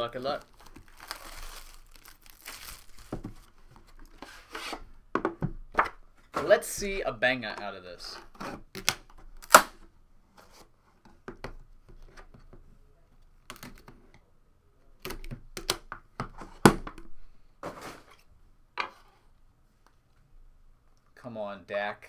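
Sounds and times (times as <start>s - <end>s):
cardboard scraping and rustling: 17.6s - 18.2s.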